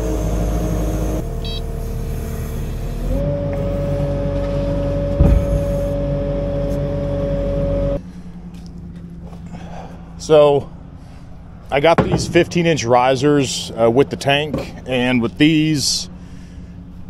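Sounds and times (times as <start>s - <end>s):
loader engine whining: 0.0s - 17.0s
metal clunk: 11.9s - 12.6s.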